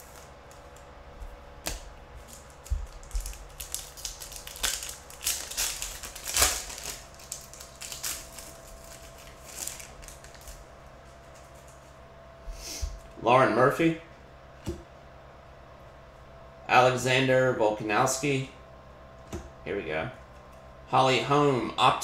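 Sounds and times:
foil wrapper crinkling and tearing: 0:01.7 - 0:11.9.

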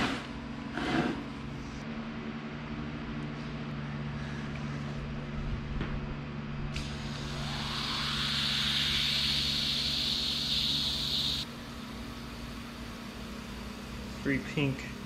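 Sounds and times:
aerosol can hissing into tire: 0:06.8 - 0:11.4.

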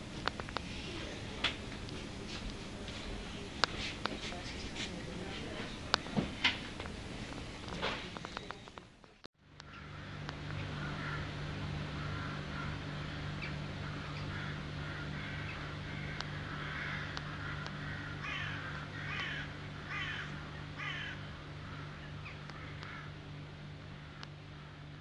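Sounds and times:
steady low hum: 0:00.0 - 0:25.0
crow cawing: 0:09.6 - 0:23.2.

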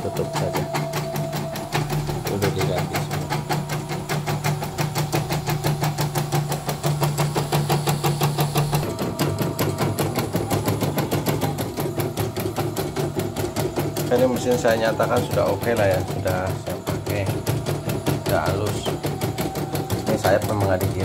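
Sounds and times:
embroidery machine needle strokes: 0:00.0 - 0:21.0
steady motor hum: 0:00.0 - 0:21.0.

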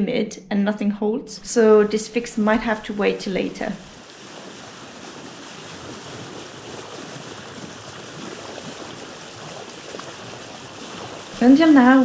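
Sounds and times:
small water splashes: 0:02.2 - 0:12.0
sea surf rushing: 0:02.7 - 0:12.0.

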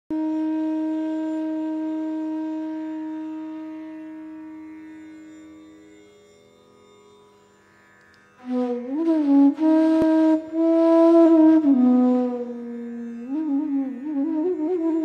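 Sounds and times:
long instrumental note: 0:08.4 - 0:15.0.

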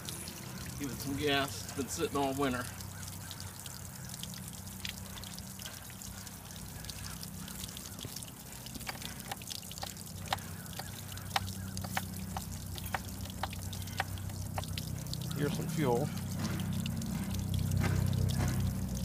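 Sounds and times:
water splashing and dripping: 0:00.0 - 0:19.0
low hum: 0:04.0 - 0:19.0.

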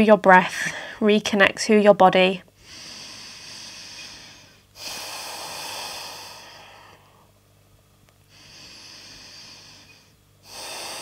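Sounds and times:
person breathing deeply: 0:02.6 - 0:07.4, 0:08.2 - 0:11.0.

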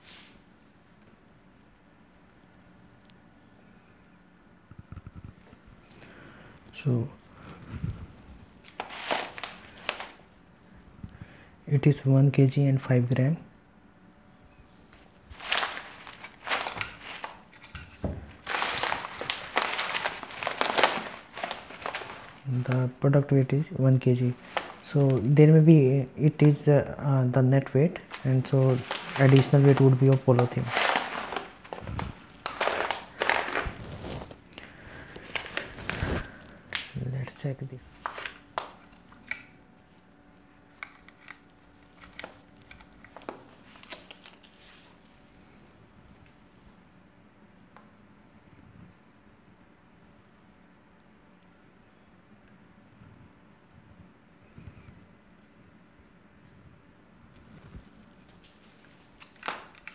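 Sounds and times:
plastic packet crinkling: 0:08.6 - 0:10.2, 0:15.3 - 0:22.9, 0:24.2 - 0:25.4, 0:27.9 - 0:37.0, 0:37.9 - 0:39.0, 0:40.8 - 0:44.5, 0:58.8 - 0:59.9.

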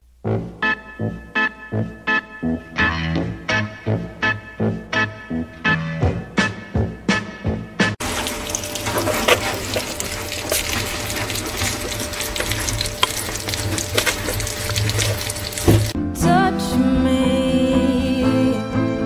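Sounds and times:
hedgehogs lapping and chewing: 0:08.0 - 0:16.0.

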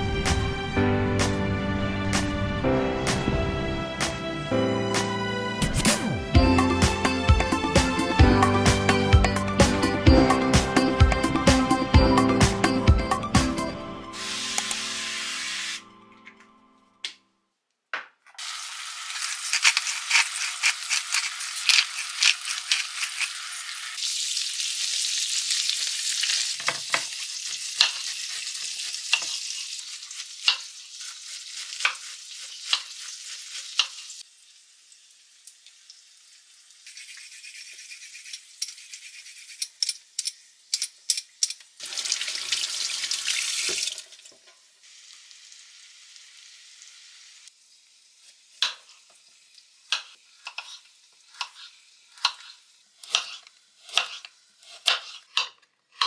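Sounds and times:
food sizzling in a frying pan: 0:14.2 - 0:15.8, 0:18.4 - 0:38.9, 0:41.7 - 0:55.2
short burst of hiss: 0:14.2 - 0:15.9
knife chopping on wooden board: 0:52.2 - 0:56.0.

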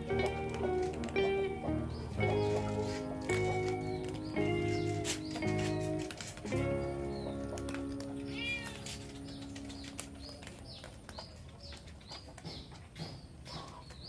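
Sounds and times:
kittens eating from plastic bowl: 0:00.0 - 0:04.9, 0:05.5 - 0:14.0
held music chord: 0:00.0 - 0:10.4
kitten mewing: 0:08.3 - 0:08.9.

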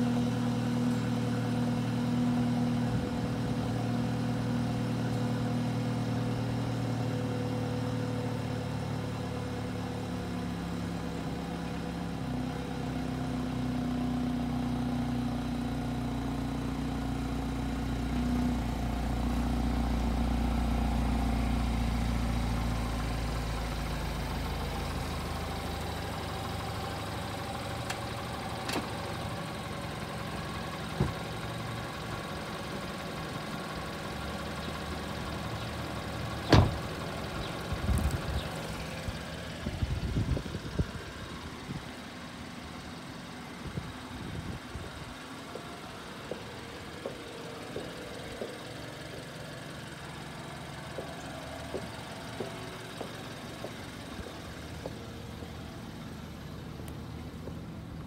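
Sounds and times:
car engine idling: 0:00.0 - 0:58.0
engine knocks and clicks: 0:26.1 - 0:29.3, 0:30.3 - 0:41.1, 0:44.9 - 0:58.0.

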